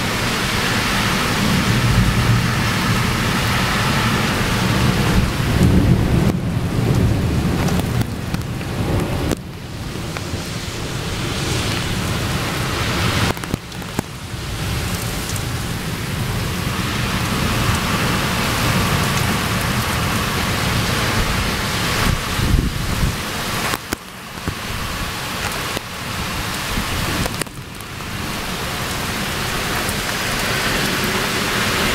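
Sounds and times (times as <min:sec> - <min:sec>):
low thunder rumble: 0:00.0 - 0:13.4
rain pouring: 0:00.0 - 0:31.9.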